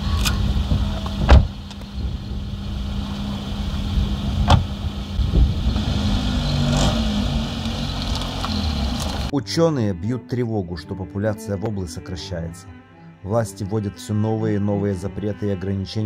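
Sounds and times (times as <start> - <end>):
road rumble: 0.0 - 9.3
car engine running: 0.4 - 9.3.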